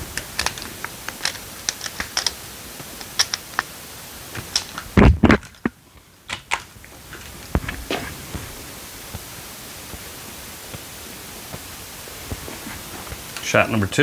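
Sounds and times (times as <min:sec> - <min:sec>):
air rifle clicks and rattles: 0:00.0 - 0:03.8, 0:04.4 - 0:05.7.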